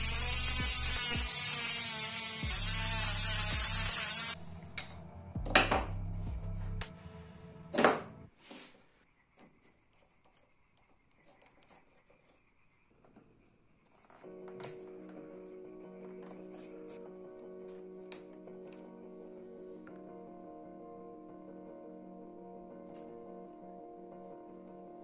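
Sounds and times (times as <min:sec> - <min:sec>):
background music with bass: 0:00.0 - 0:01.3, 0:02.4 - 0:08.2
rotary tool sanding wood: 0:00.0 - 0:04.4.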